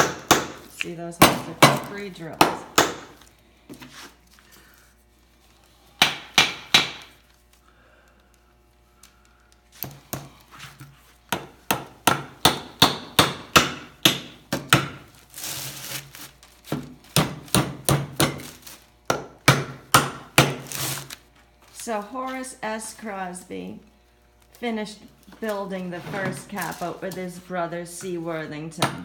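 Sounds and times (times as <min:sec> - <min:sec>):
hammer striking nails into wood: 0:00.0 - 0:03.2, 0:06.0 - 0:07.2, 0:11.3 - 0:15.0, 0:17.2 - 0:18.5, 0:19.1 - 0:20.6.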